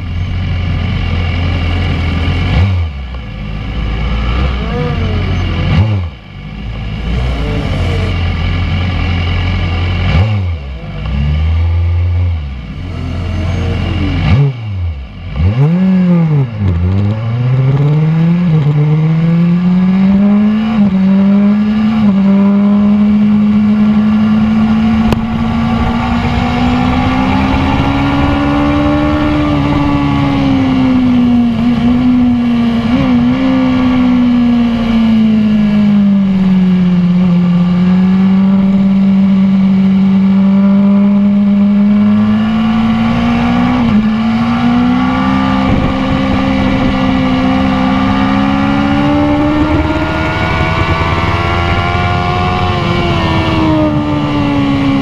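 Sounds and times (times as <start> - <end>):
motorcycle engine revving: 0.0 - 55.0
wind rush: 23.9 - 35.1, 43.7 - 55.0.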